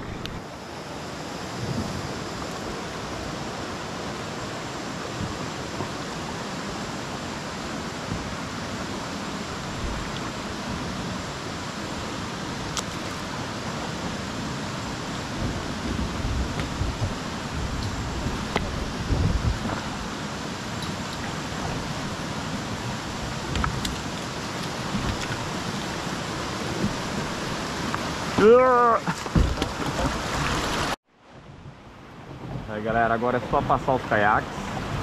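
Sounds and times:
creek water flowing: 0:00.0 - 0:35.0.

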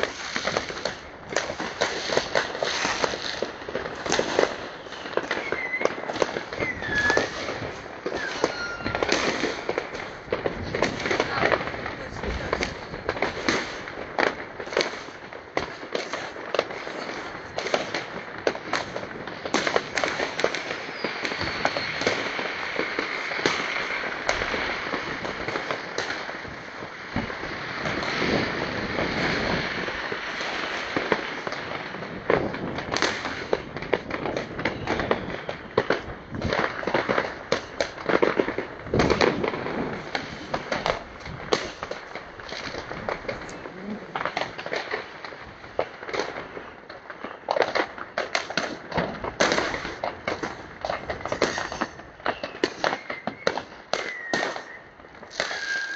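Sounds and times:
fireworks bangs and crackling: 0:00.0 - 0:55.9
firework whistles: 0:01.7 - 0:11.4, 0:16.8 - 0:17.9, 0:19.6 - 0:25.9, 0:32.4 - 0:38.0, 0:51.1 - 0:55.9.

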